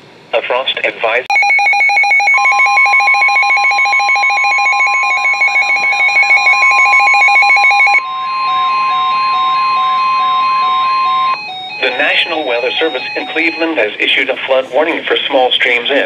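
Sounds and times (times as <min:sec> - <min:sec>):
warbling siren: 0:01.3 - 0:14.1
slow beeping: 0:01.3 - 0:14.2
steady alarm tone: 0:01.3 - 0:14.8.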